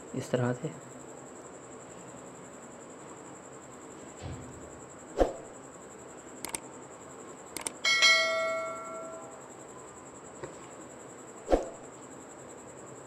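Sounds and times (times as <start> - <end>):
ringing clang of metal pot: 7.8 - 9.4.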